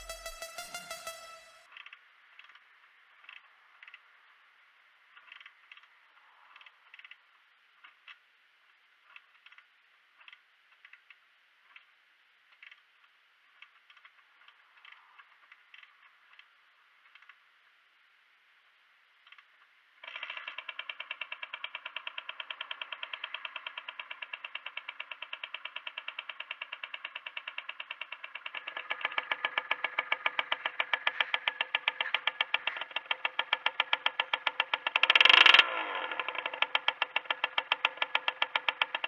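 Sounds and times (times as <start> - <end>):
kick-start mechanical clicking: 20.1 - 39.0
two-stroke engine running: 20.1 - 39.0.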